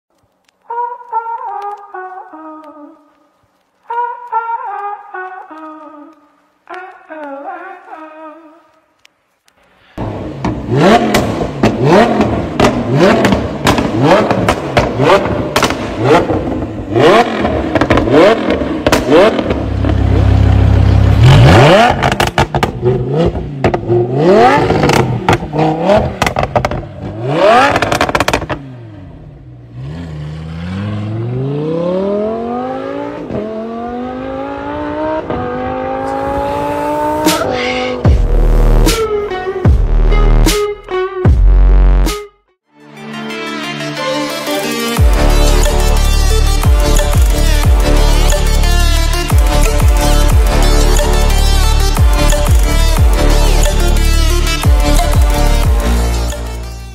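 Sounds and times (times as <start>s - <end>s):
exhaust crackling pops: 0.1s - 28.8s, 45.0s - 56.6s
sports car engine revving: 10.0s - 38.9s, 45.0s - 56.7s.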